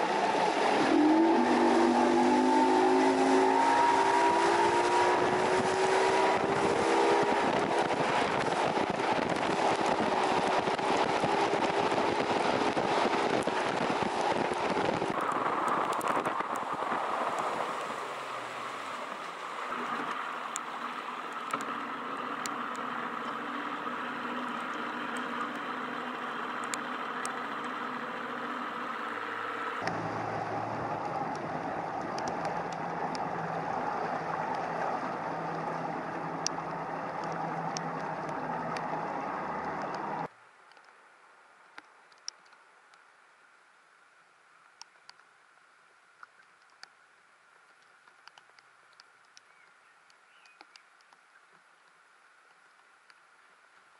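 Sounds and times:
rushing wind and water: 0:00.0 - 0:53.9
light ticks of rain: 0:05.1 - 0:53.9
outboard motor running: 0:18.6 - 0:40.3.

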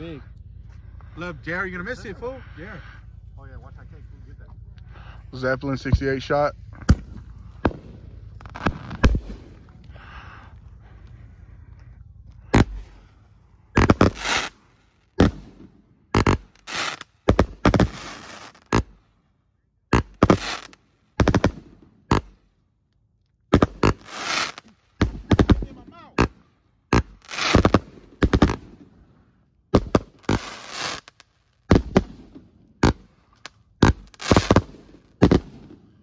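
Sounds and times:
firework bangs: 0:05.8 - 0:10.6, 0:12.5 - 0:13.1, 0:13.7 - 0:19.0, 0:19.9 - 0:22.4, 0:23.5 - 0:28.9, 0:29.7 - 0:36.0
firework hissing: 0:13.8 - 0:15.6, 0:16.2 - 0:18.8, 0:20.2 - 0:20.8, 0:23.8 - 0:24.7, 0:27.1 - 0:28.6, 0:30.0 - 0:31.2, 0:33.9 - 0:35.5.

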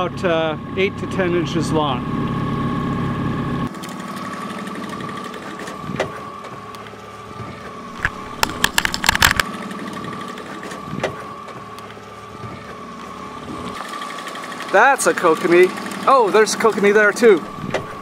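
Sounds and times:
underwater outboard motor whine: 0:00.0 - 0:18.0
clicks and rattles: 0:08.0 - 0:09.5
sharp clicks: 0:08.0 - 0:09.5.

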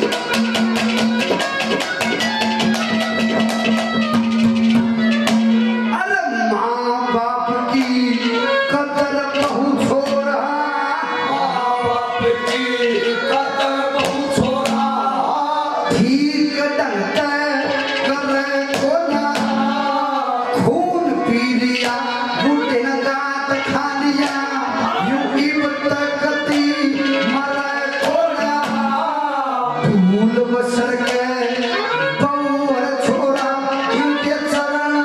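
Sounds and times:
hand drum: 0:00.0 - 0:05.9, 0:09.3 - 0:10.4, 0:12.0 - 0:15.2, 0:17.2 - 0:22.5, 0:23.7 - 0:30.0
man singing through a pa: 0:05.8 - 0:35.0.

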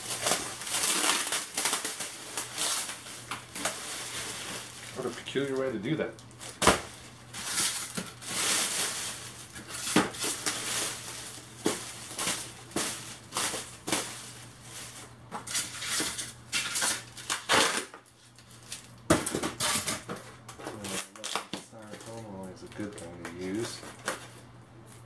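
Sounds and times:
plastic bag rustling: 0:00.0 - 0:17.4.

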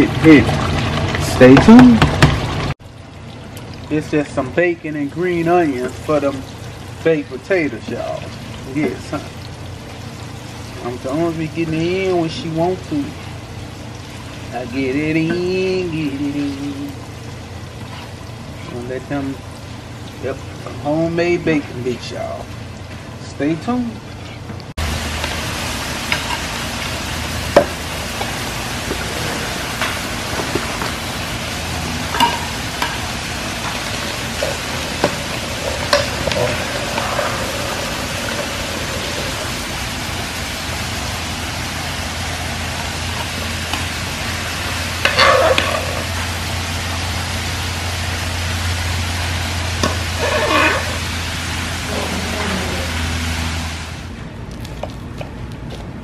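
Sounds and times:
steady hiss: 0:24.8 - 0:54.1
metal tongs scraping frying pan: 0:32.1 - 0:38.5, 0:49.8 - 0:51.0.

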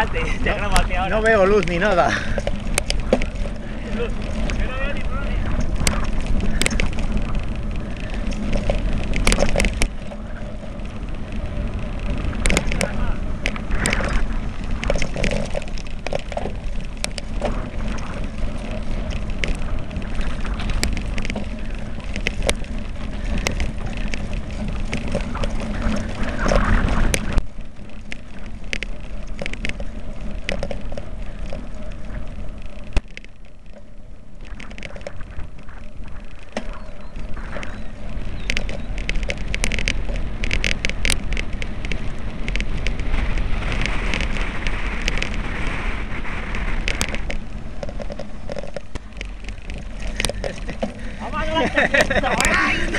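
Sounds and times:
tyres rolling over dirt: 0:00.0 - 0:52.9
wind buffeting microphone: 0:00.0 - 0:52.9
camera mount rattling: 0:08.0 - 0:10.2, 0:12.3 - 0:19.6, 0:28.1 - 0:31.6.

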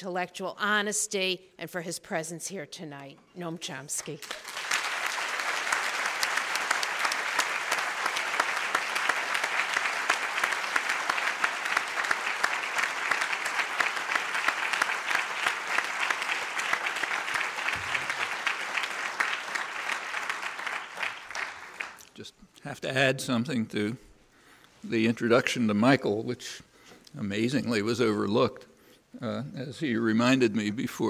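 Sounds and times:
audience applauding: 0:04.2 - 0:22.2.

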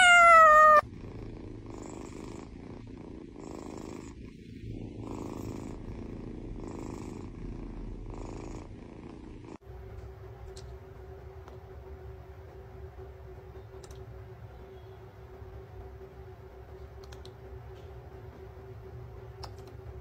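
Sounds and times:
cat purring: 0:00.0 - 0:09.6
low steady hum: 0:00.0 - 0:20.0.

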